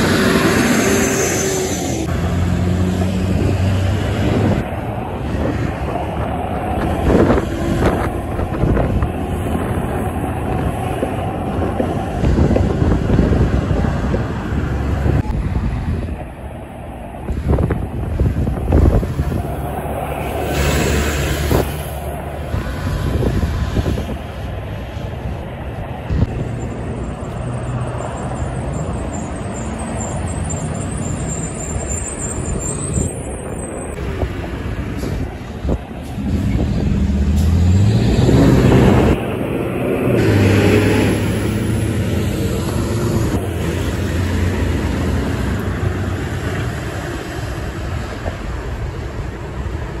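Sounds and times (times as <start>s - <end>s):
diesel truck traffic: 0.0s - 50.0s
truck diesel engine passing: 0.0s - 50.0s.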